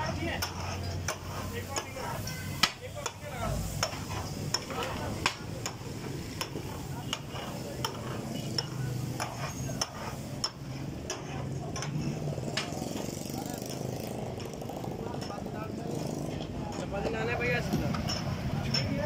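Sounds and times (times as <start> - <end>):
oil sizzling: 0.0 - 13.2
metal spatulas clanking on griddle: 0.4 - 12.7.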